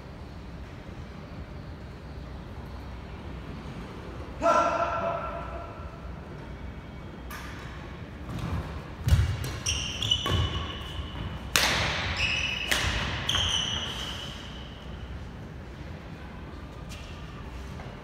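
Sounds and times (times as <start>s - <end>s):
court shoes squeaking: 7.3s - 15.3s
racket hitting shuttlecock: 11.4s - 13.9s.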